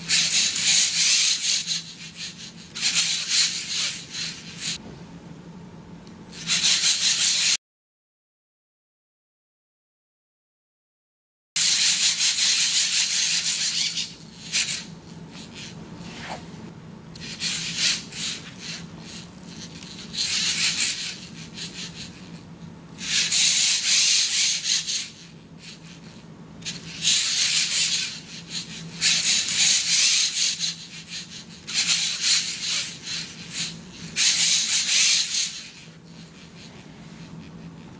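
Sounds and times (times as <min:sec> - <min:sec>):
steady low hum: 0:00.0 - 0:07.6, 0:11.6 - 0:37.9.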